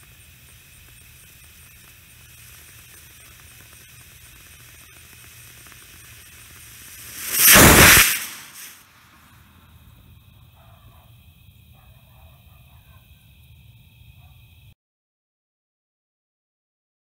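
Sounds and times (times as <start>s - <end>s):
rocket motor firing: 0.0s - 8.8s.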